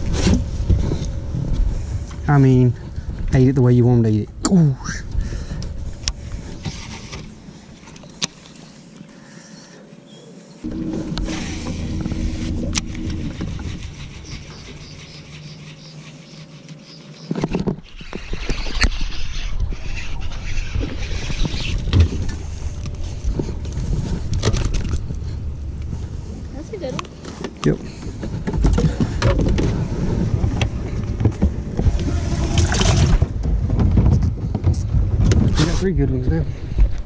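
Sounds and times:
faint steady hum: 0.0s - 17.5s, 21.6s - 33.4s
boat rushing under way: 10.6s - 15.2s, 22.0s - 33.4s
wind on microphone: 10.6s - 15.3s.

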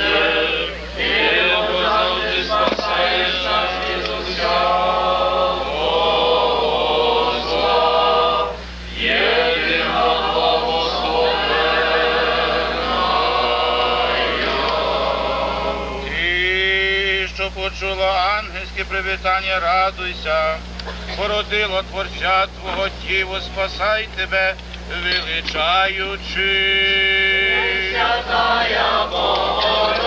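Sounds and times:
men chanting a hymn: 0.0s - 17.6s, 24.9s - 30.0s.

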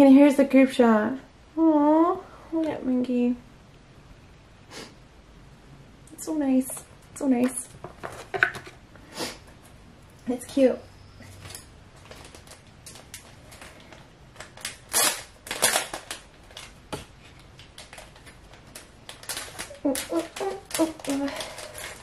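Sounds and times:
plastic packaging crinkling: 11.3s - 22.0s.

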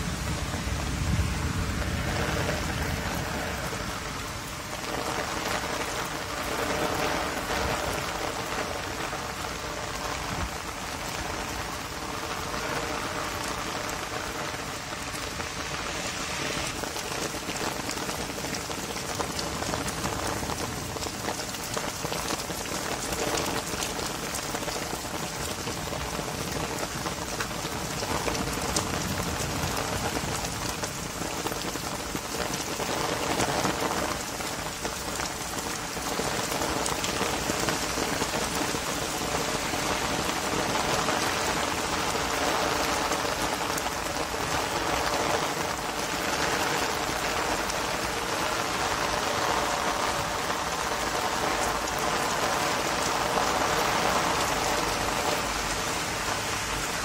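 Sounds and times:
heavy rain on pavement: 0.0s - 57.0s.

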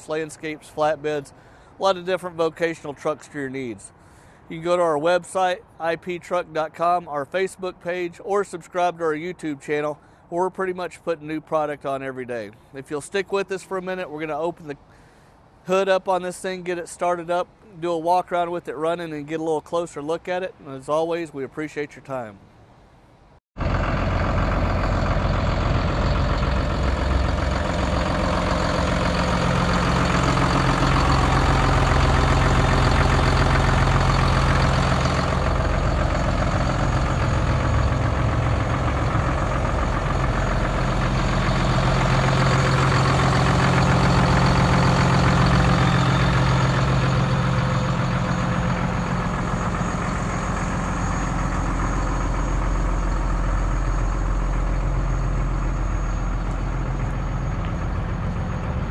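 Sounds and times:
diesel truck engine idling: 23.6s - 58.9s.

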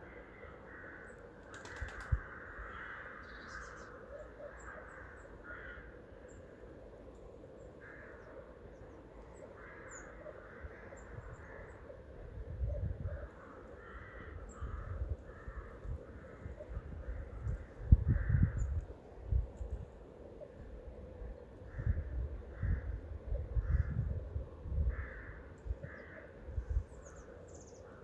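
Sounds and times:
harsh bird calls: 0.0s - 6.6s.

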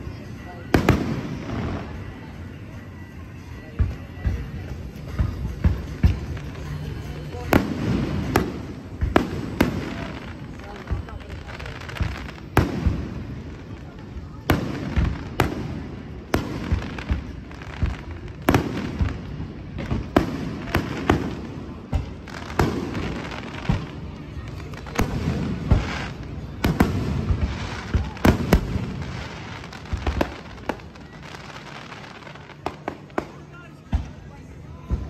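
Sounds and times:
fireworks crackling: 0.0s - 35.0s
fireworks bangs: 3.8s - 35.0s.

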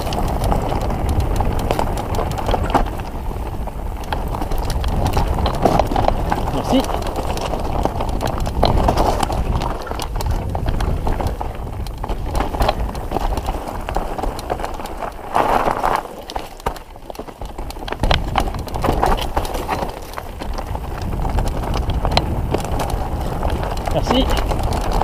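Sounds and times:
bike rattling over rocks: 0.0s - 25.0s.

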